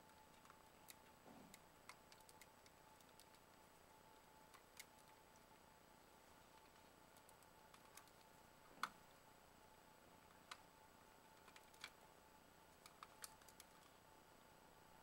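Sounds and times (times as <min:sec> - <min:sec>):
faint plastic clicks and ticks: 0:00.0 - 0:05.7, 0:06.5 - 0:09.2, 0:10.2 - 0:12.0, 0:12.7 - 0:14.5.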